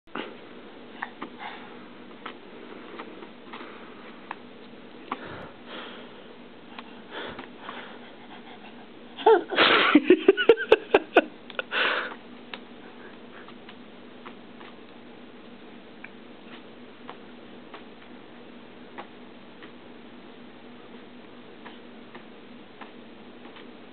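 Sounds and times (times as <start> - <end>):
toddler giggling and squealing: 9.2 - 9.7.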